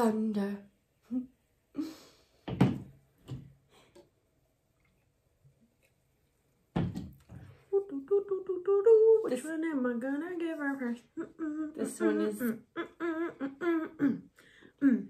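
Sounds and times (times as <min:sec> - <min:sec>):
woman humming: 0:07.7 - 0:09.4, 0:11.0 - 0:15.0.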